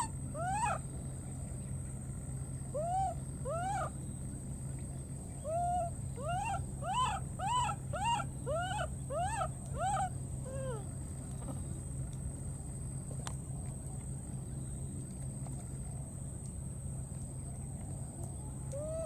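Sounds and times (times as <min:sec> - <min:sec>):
baby monkey crying out: 0:00.0 - 0:00.8, 0:02.8 - 0:03.9, 0:05.5 - 0:10.9.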